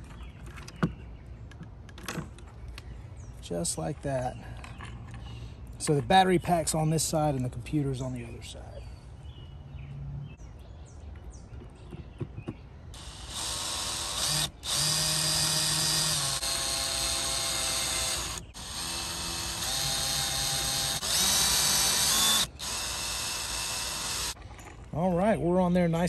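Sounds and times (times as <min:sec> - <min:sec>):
cordless drill driving screws: 0:13.0 - 0:24.4.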